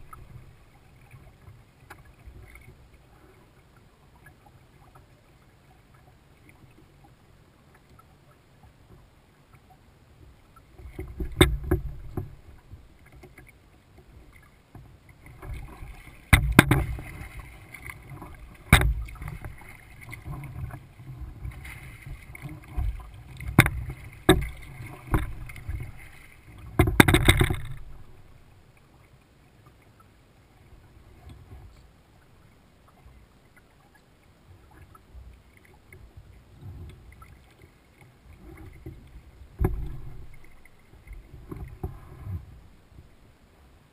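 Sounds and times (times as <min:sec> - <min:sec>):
low steady water noise: 0:00.0 - 0:43.9
paddle splashing water: 0:00.0 - 0:43.9
sharp knocks: 0:16.3 - 0:17.0, 0:18.7 - 0:19.2.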